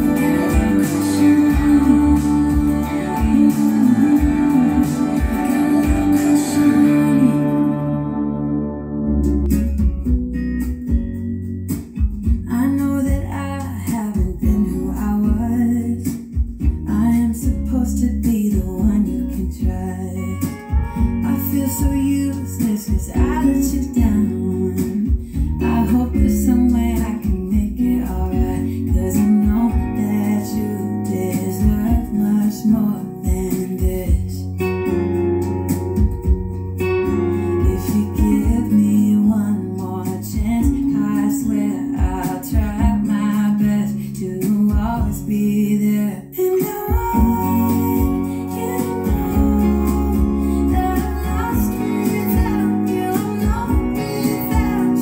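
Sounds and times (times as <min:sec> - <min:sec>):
person singing: 0:00.0 - 0:09.4, 0:12.4 - 0:36.2, 0:37.1 - 0:55.0
strummed acoustic guitar: 0:00.0 - 0:55.0.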